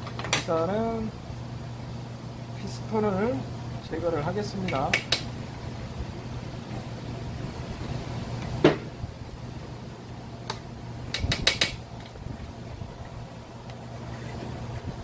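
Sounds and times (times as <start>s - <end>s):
steady low hum: 0.0s - 15.0s
metal tool clicks and knocks: 11.1s - 12.1s.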